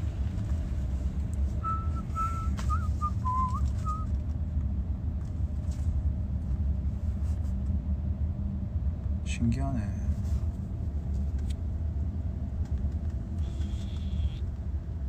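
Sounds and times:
car cabin road rumble: 0:00.0 - 0:15.0
person whistling tune: 0:01.6 - 0:04.1.

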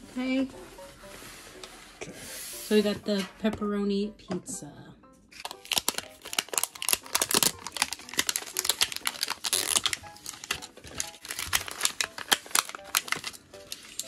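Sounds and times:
plastic pieces clicking and rattling: 0:05.4 - 0:14.0.

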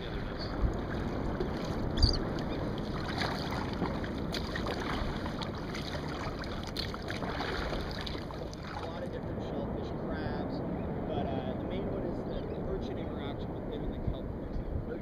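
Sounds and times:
water lapping at hull: 0:00.0 - 0:09.6
wind buffeting microphone: 0:00.0 - 0:15.0.

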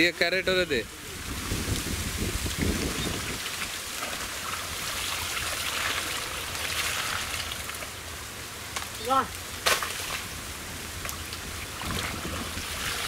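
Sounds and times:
water splashing off plastic crate: 0:02.6 - 0:07.9, 0:11.1 - 0:13.0.

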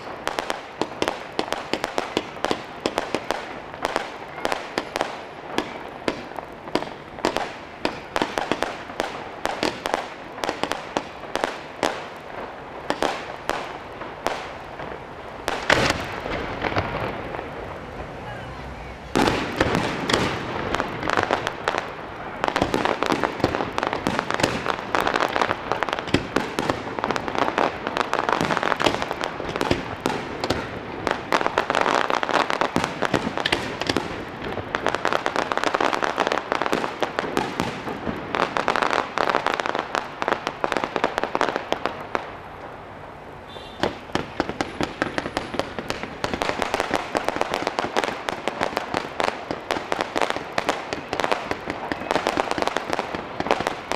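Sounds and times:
crackle of sharp pops: 0:00.0 - 0:17.6, 0:19.2 - 0:42.8, 0:43.5 - 0:53.9
firework shells bursting: 0:15.4 - 0:17.4, 0:19.2 - 0:32.0, 0:32.6 - 0:35.7.

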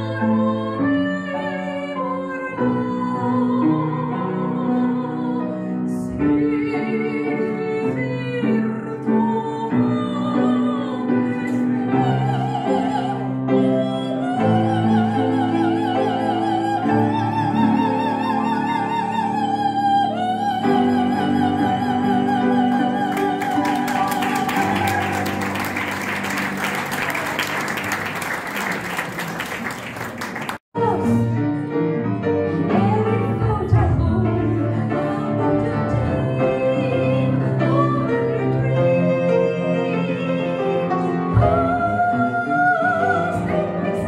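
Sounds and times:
woman singing: 0:00.0 - 0:25.8, 0:32.5 - 0:44.0
grand piano: 0:00.0 - 0:44.0
audience applauding: 0:23.1 - 0:30.7.

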